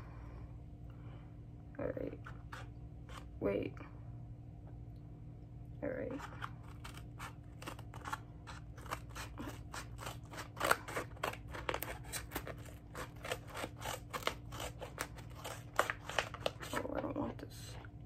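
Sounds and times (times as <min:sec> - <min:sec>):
scissors snipping envelope: 0:06.2 - 0:16.9.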